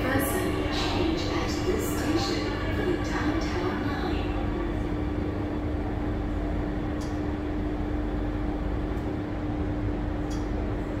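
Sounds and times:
metro train interior rumble: 0.0s - 11.0s
light click: 10.3s - 10.5s.

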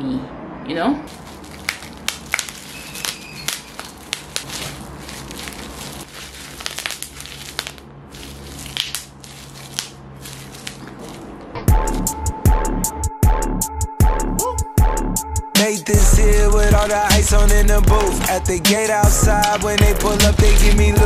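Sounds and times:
bubble wrap popping: 1.1s - 11.5s, 16.6s - 20.8s
plastic crinkling: 1.1s - 11.5s, 16.6s - 20.7s.

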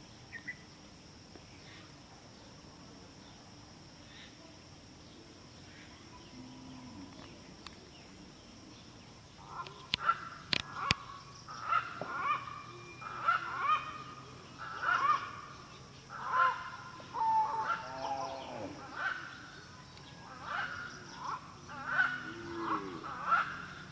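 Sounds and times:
bird calling: 9.4s - 23.9s.

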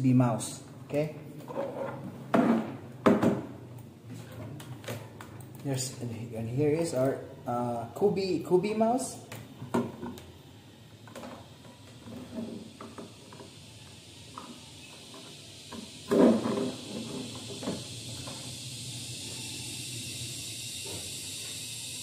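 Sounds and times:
faint hiss: 5.6s - 22.0s.

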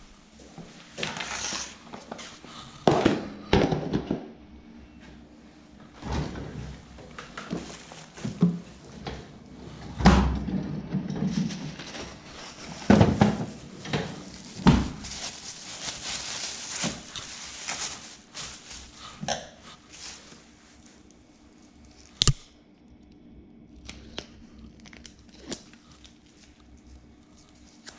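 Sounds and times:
fridge drawer opening and shutting: 5.9s - 15.1s
plastic bags rustling: 6.7s - 9.0s, 11.1s - 22.3s.

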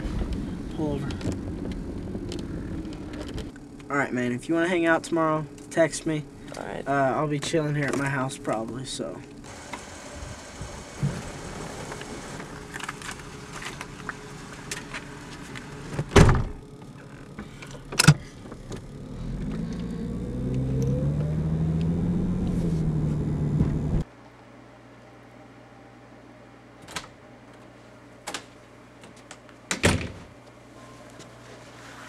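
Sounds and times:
car engine revving: 0.0s - 3.8s, 18.6s - 24.0s
car door shutting: 10.6s - 13.0s, 15.9s - 16.6s.

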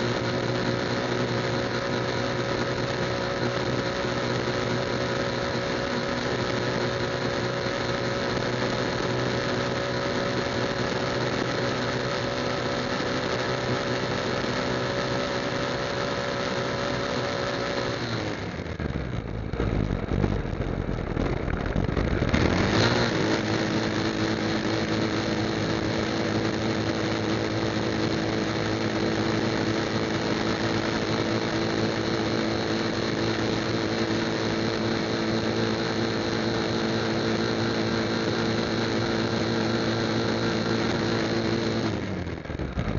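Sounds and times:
motorcycle engine running: 0.0s - 42.9s
low rumble: 18.7s - 22.7s.

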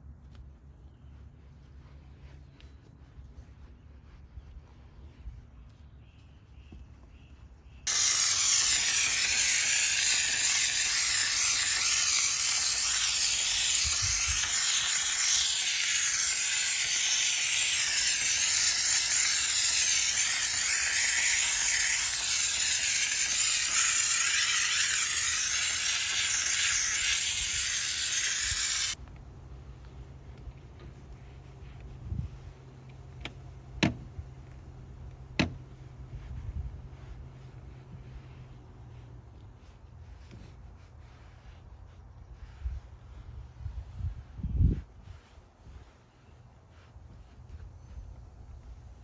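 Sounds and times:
pressurized air jet hissing: 7.9s - 29.0s.

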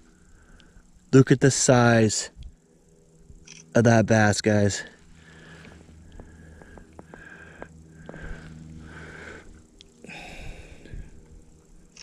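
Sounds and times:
man breathing hard: 5.1s - 11.4s.

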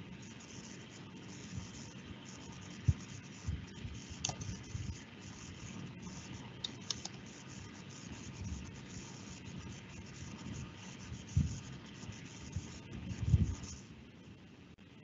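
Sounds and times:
background hiss: 0.0s - 15.0s
keyboard and mouse clicks: 4.2s - 4.5s, 6.6s - 7.2s.

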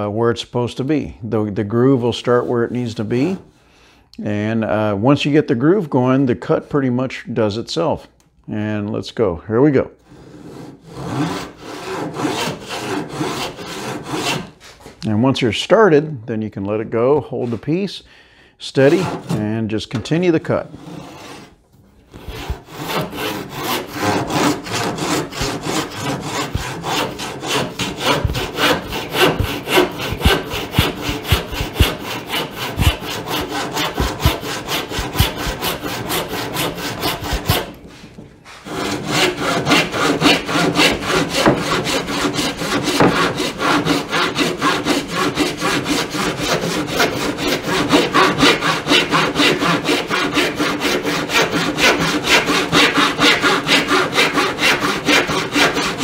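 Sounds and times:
handsaw cutting wood: 10.1s - 14.6s, 18.8s - 19.5s, 20.6s - 56.0s.

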